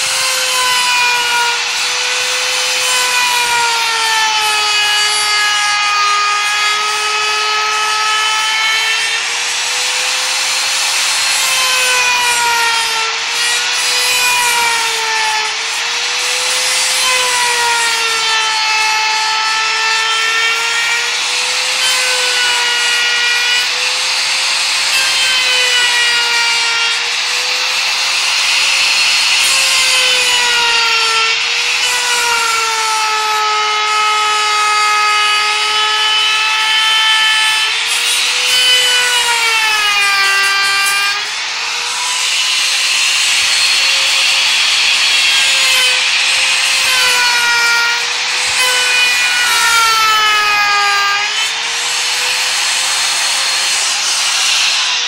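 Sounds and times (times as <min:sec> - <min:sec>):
router cutting wood: 0:00.0 - 0:55.0.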